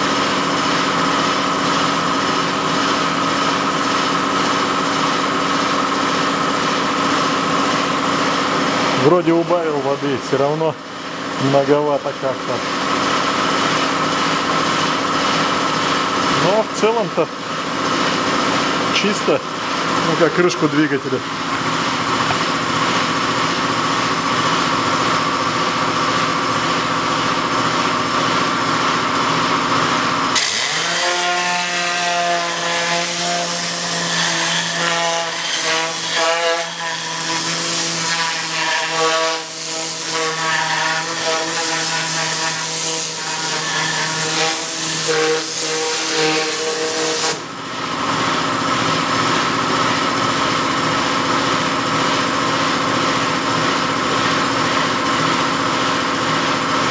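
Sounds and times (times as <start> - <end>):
air compressor running: 0.0 - 56.9
compressed air spray hissing: 39.4 - 40.4.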